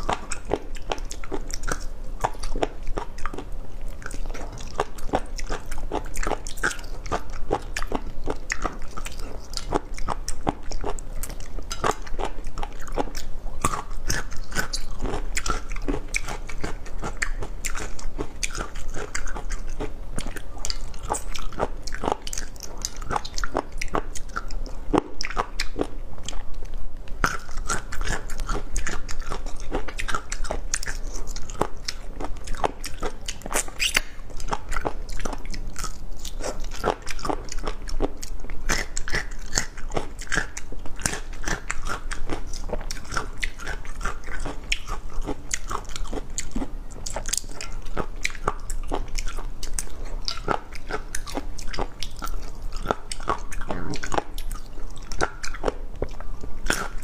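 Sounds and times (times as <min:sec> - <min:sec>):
person chewing crunchy food: 0:00.0 - 0:57.0.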